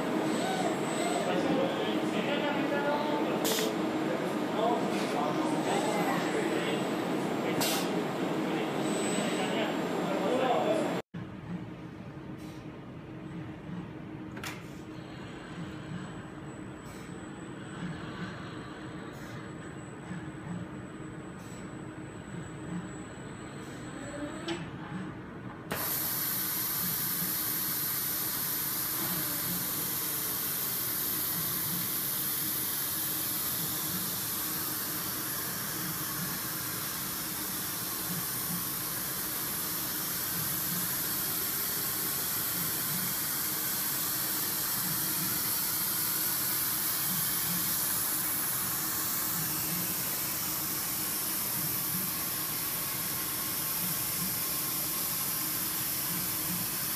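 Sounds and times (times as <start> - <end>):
compressed air hissing: 25.7 - 56.9.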